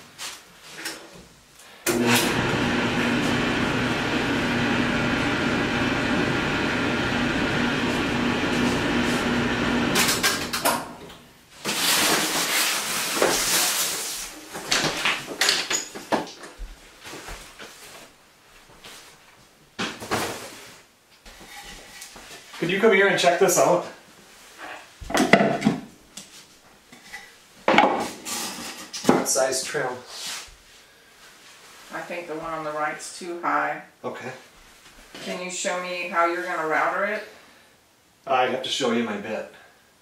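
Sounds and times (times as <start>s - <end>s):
laundry machine humming: 1.9s - 11.4s.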